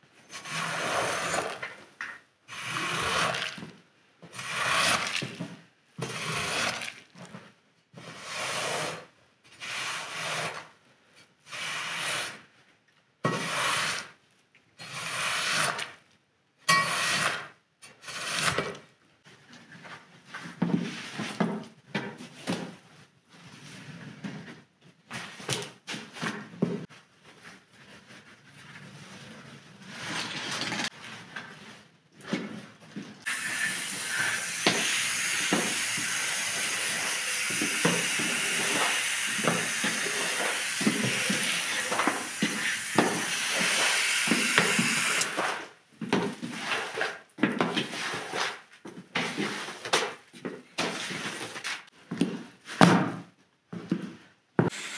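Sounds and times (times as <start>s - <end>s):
scrubber swishing over wet rug: 46.5s - 47.2s, 47.9s - 48.6s.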